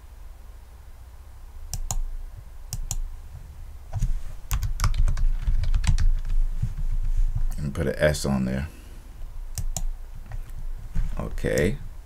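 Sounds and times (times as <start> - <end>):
keyboard typing: 1.7 - 2.1, 2.7 - 3.0, 4.0 - 6.4, 9.5 - 10.5.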